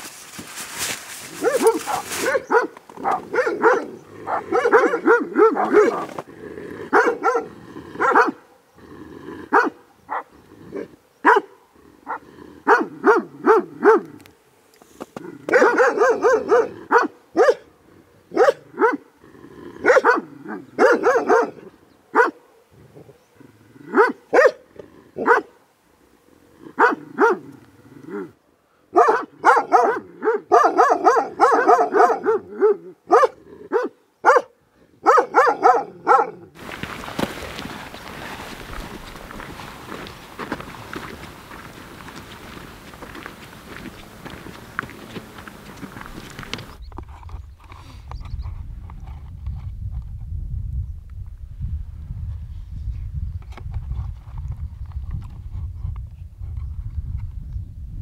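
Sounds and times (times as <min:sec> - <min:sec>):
dog barking: 0:01.3 - 0:06.2, 0:06.9 - 0:08.7, 0:09.5 - 0:14.2, 0:15.5 - 0:17.7, 0:18.3 - 0:19.1, 0:19.8 - 0:23.1, 0:23.8 - 0:25.6, 0:26.7 - 0:27.5, 0:28.9 - 0:36.5.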